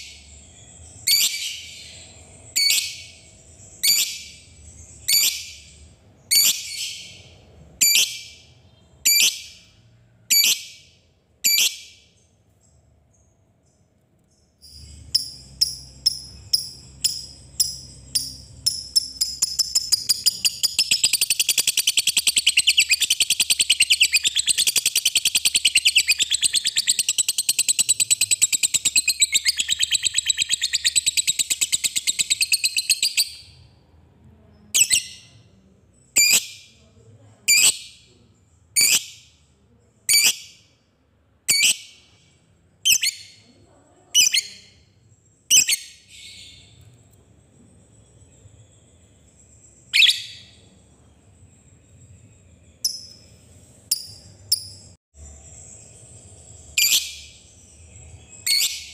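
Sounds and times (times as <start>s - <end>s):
lovebird chattering trill: 14.6s - 33.5s.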